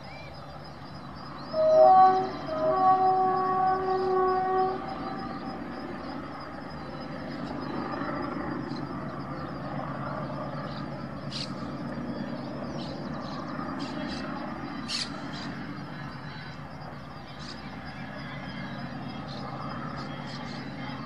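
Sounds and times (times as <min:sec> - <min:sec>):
freight wagons rumbling past: 0:00.0 - 0:21.0
locomotive air horn: 0:01.5 - 0:06.0
bird chirps: 0:10.5 - 0:16.6.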